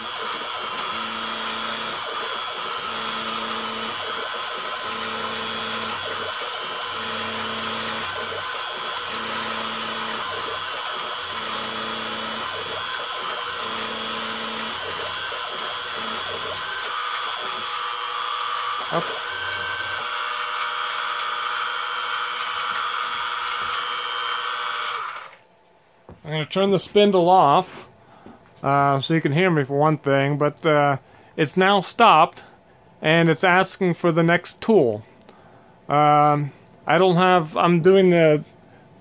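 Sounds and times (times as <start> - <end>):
drill plunging hum: 0.0 - 25.4
mill spindle motor running: 0.0 - 25.5.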